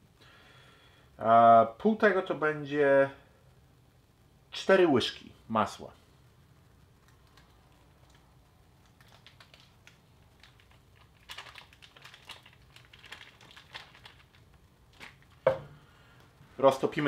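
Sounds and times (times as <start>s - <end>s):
paper wrapper crinkling: 7.0s - 15.5s.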